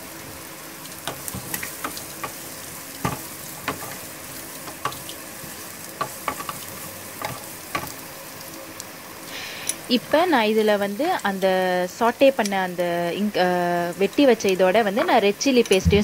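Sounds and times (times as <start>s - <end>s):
vegetables sizzling in hot oil: 0.0s - 15.9s.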